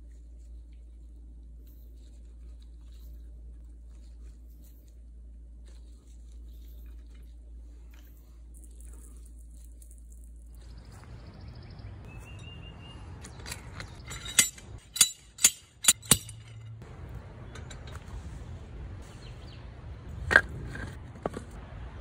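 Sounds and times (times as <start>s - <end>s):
sharp metal clinks: 13.2s - 16.8s
metal clank with ring: 13.4s - 16.8s.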